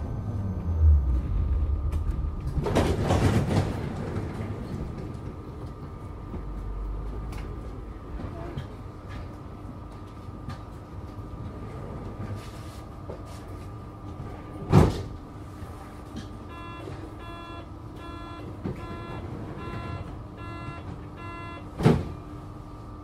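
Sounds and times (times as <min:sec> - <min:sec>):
tram electrical hum: 0:00.0 - 0:23.0
repeating electronic door beep: 0:16.5 - 0:21.7.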